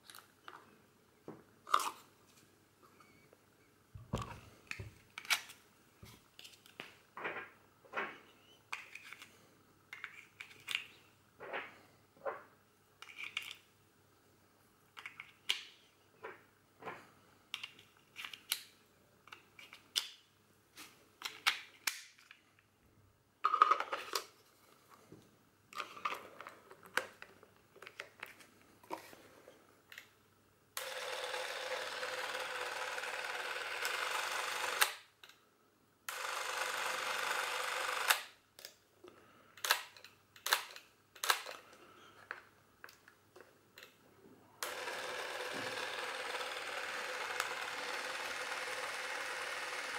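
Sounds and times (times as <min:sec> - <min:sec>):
camera motor running: 0:30.8 - 0:34.9, 0:36.1 - 0:38.2, 0:44.6 - 0:49.9.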